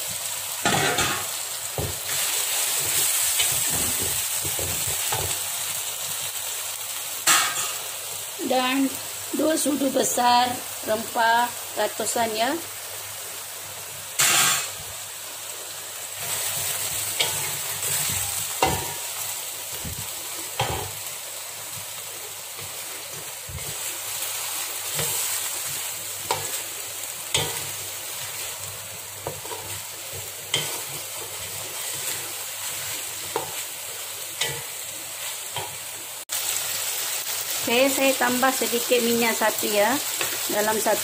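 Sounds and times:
food sizzling in hot oil: 0:00.0 - 0:41.0
spatula knocking and scraping pan: 0:02.8 - 0:05.4, 0:17.1 - 0:19.1, 0:19.8 - 0:21.0, 0:27.3 - 0:27.8, 0:29.2 - 0:32.2, 0:33.2 - 0:33.6.

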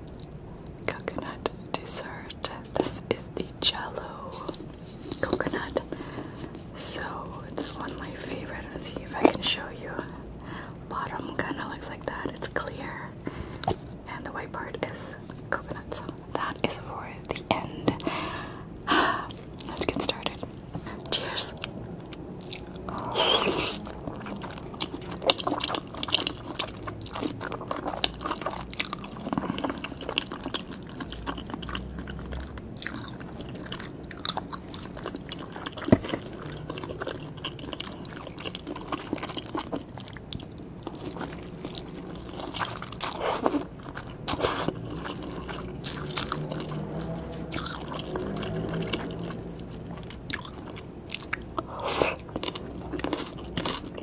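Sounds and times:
wet chewing: 0:19.2 - 0:54.0.

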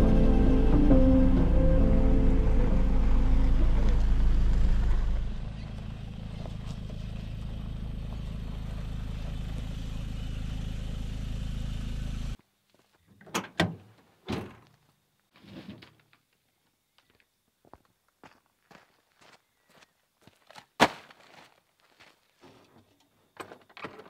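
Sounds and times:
music: 0:00.0 - 0:04.2
vehicle engine drone: 0:00.0 - 0:12.4.

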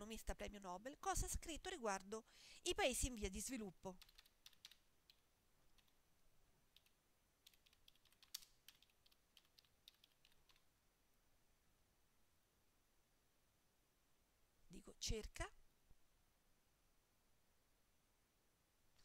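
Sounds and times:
computer keyboard typing: 0:04.0 - 0:06.0, 0:06.7 - 0:10.7.

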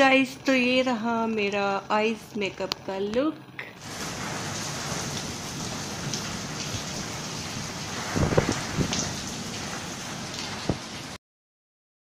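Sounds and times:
heavy rain falling: 0:03.8 - 0:11.2.

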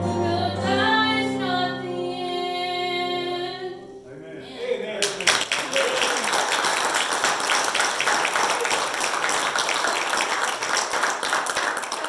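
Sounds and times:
crowd applauding: 0:05.0 - 0:12.0.

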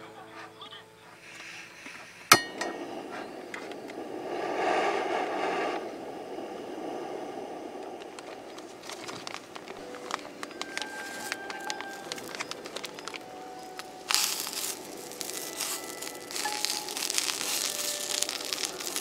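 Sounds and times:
gas burner hissing: 0:01.1 - 0:19.0
plastic packet crinkling: 0:08.5 - 0:19.0.

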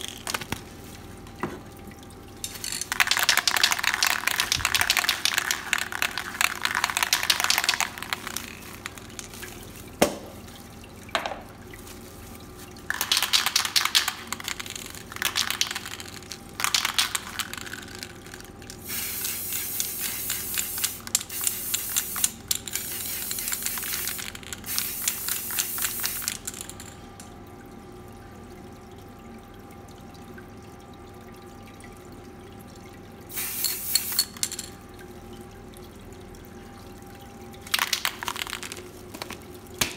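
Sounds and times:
spray paint can hissing: 0:18.8 - 0:26.6, 0:33.3 - 0:34.6.

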